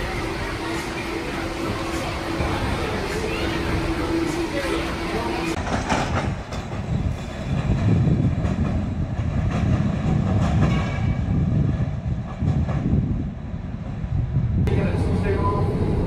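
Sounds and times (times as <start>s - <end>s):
streetcar rumbling on rails: 0.0s - 16.0s.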